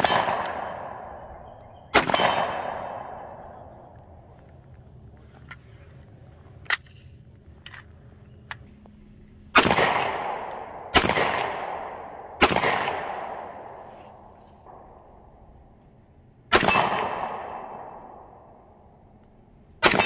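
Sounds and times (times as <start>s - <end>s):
gunshots with echo: 0.0s - 4.2s, 9.6s - 15.5s, 16.5s - 18.7s, 19.8s - 20.0s.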